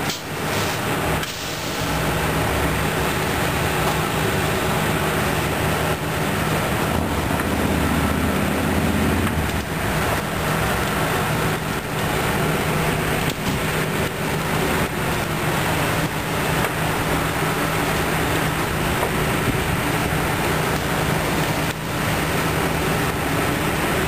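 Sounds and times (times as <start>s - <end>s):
fire engine running: 0.0s - 24.0s
rushing noise of fire: 0.0s - 24.0s
drone rising in pitch: 6.8s - 9.6s.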